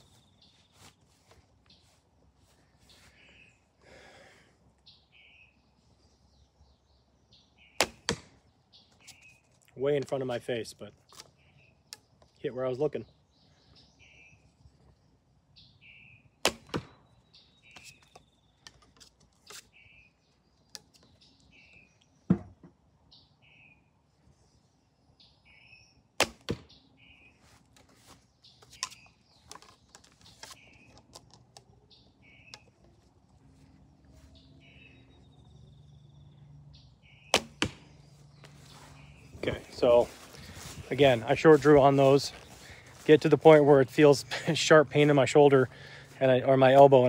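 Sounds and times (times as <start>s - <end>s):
arrows striking target: 7.8s - 8.4s, 16.4s - 17.0s, 26.2s - 26.7s, 28.6s - 31.3s, 37.3s - 37.9s.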